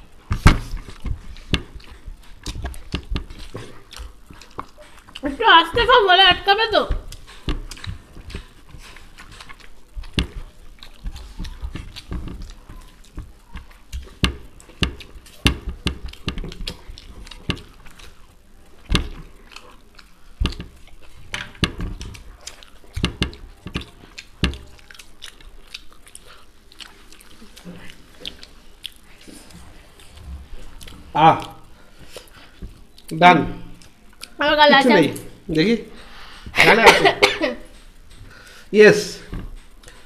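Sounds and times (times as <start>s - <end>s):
fingers clicking on plates: 0.0s - 18.2s, 18.8s - 26.0s
chewing and mouth smacking: 0.0s - 36.9s, 37.6s - 40.0s.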